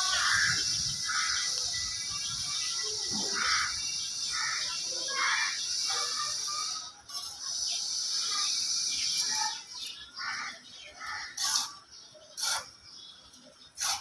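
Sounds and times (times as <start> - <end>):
steady high hiss: 0.0 - 9.7.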